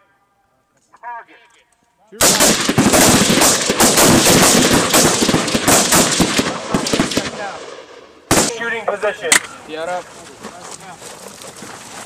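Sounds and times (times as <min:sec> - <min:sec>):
rapid overlapping gunshots: 0:02.2 - 0:09.4.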